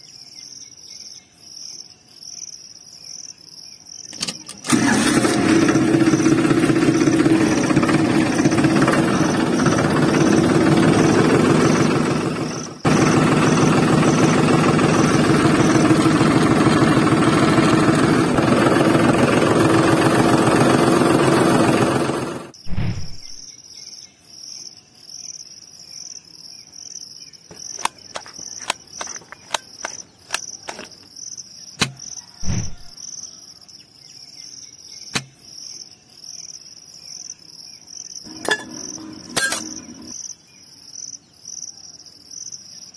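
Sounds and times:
insects chirping: 0.0s - 4.7s, 22.5s - 42.9s
tractor engine chugging: 4.6s - 22.6s, 38.3s - 40.1s.

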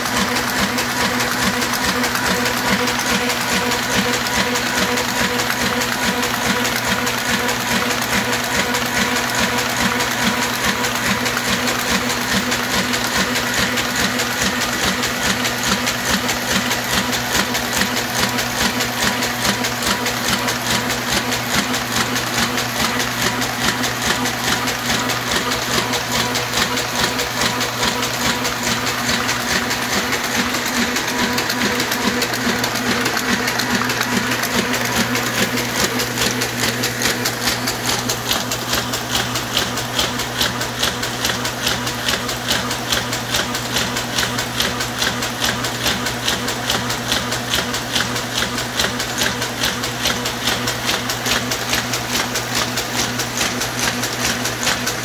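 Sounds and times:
printing press clatter: 0.0s - 55.0s
low machine hum: 18.4s - 39.2s.

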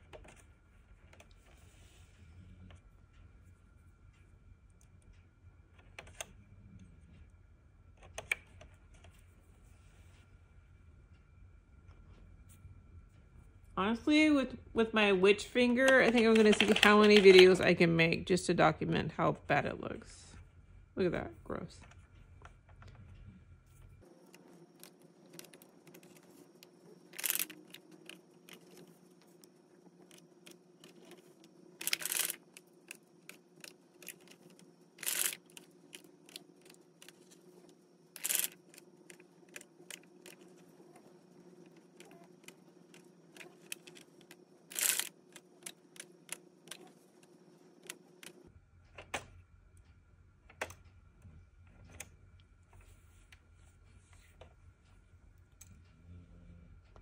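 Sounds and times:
needle clicking on plastic pegs: 15.8s - 17.6s, 24.8s - 48.4s.

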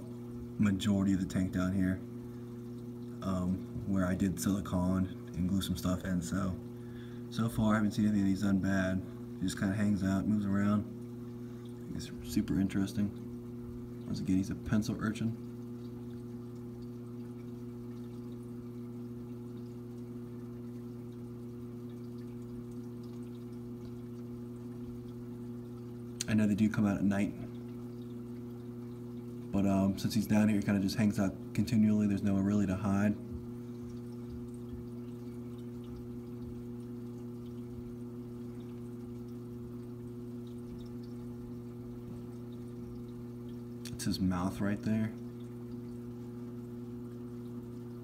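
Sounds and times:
low electrical hum: 0.0s - 48.0s
water trickling and dripping: 0.0s - 48.0s.

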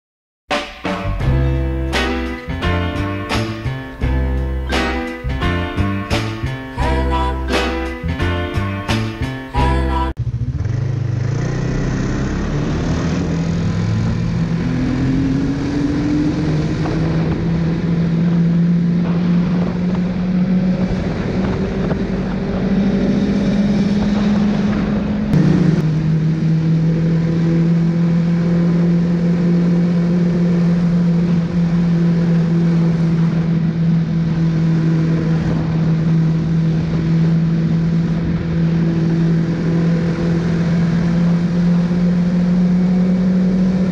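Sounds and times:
snowmobile engine running: 1.1s - 43.9s
constant rushing noise: 10.2s - 43.9s.

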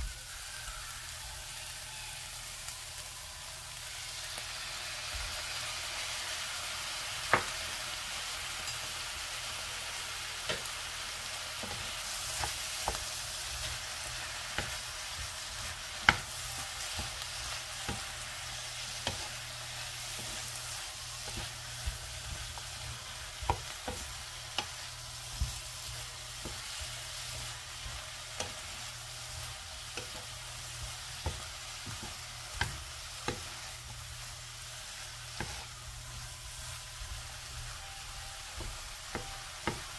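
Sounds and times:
mushrooms and onion sizzling in a pan: 0.0s - 39.9s
spatula tapping a pan: 7.3s - 7.6s, 10.4s - 10.8s, 11.6s - 39.9s.

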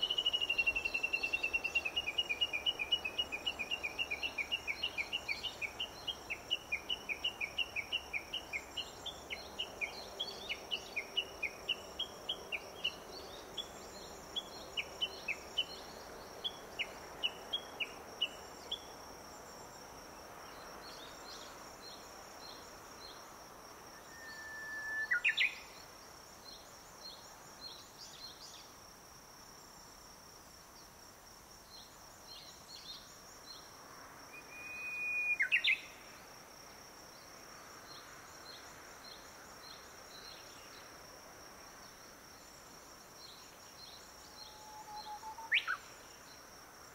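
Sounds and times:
bush warbler chirping: 0.0s - 18.8s
bird whistle and flourish song: 24.0s - 25.7s, 34.4s - 36.0s, 44.3s - 46.0s.

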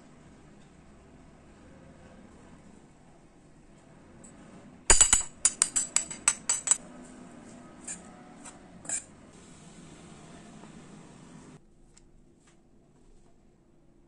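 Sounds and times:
metal spoon clinking in steel bowl: 4.9s - 6.8s.

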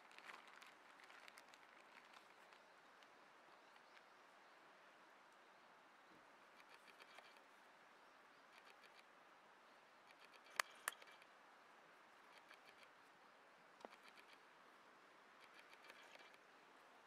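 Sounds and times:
sharp clicks: 10.1s - 11.3s.

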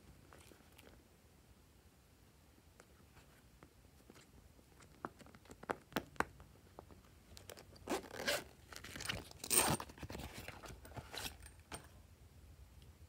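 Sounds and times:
zipper being pulled open: 7.8s - 11.5s.

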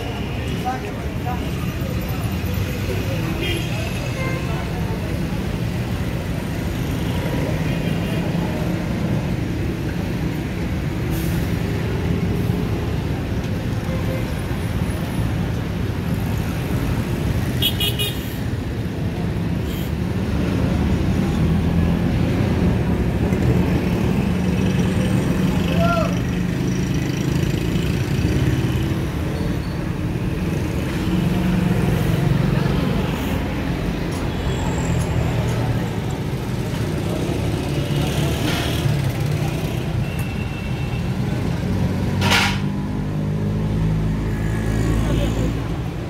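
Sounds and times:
traffic engine rumble: 0.0s - 46.0s.

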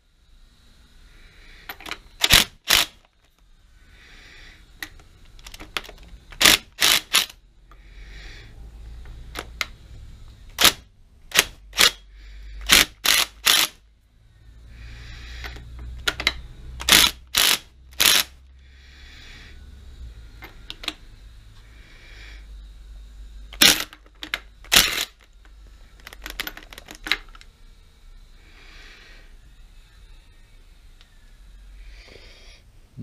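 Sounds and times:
sharp metallic clicks: 1.8s - 3.1s
cordless drill whirring: 2.2s - 3.1s, 6.4s - 7.4s, 12.7s - 13.8s, 16.8s - 18.4s.

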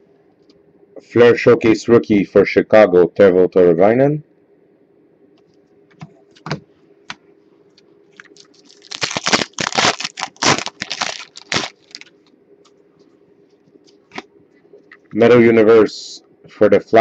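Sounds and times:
plastic wrapper crinkling: 8.1s - 12.8s.

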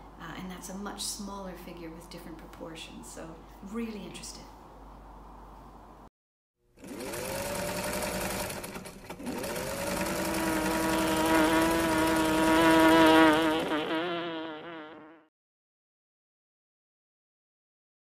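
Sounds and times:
electric sewing machine whirring: 6.7s - 14.0s.

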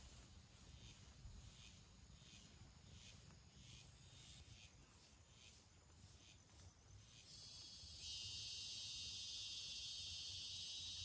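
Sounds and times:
night insects chirping: 0.0s - 11.0s
high-pitched insect buzz: 0.1s - 11.0s.

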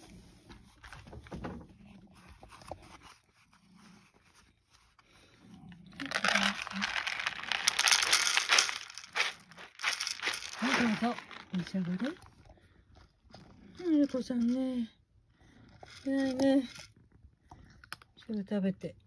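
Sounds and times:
kibble pattering onto plate: 6.0s - 12.2s.

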